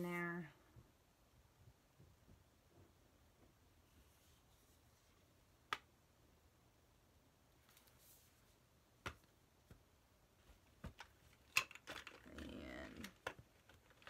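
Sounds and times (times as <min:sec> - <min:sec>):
packaging rustling: 0:10.9 - 0:14.0.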